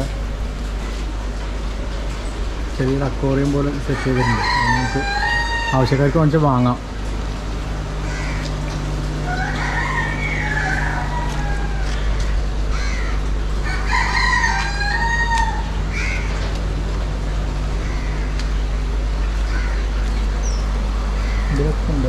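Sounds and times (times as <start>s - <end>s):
steady low hum: 0.0s - 22.0s
rooster crowing: 3.7s - 6.7s, 8.0s - 16.3s.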